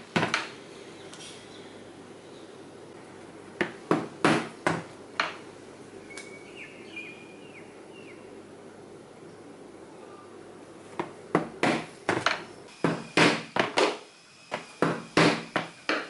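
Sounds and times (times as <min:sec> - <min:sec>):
rubber mallet striking chisel: 0:11.0 - 0:16.0.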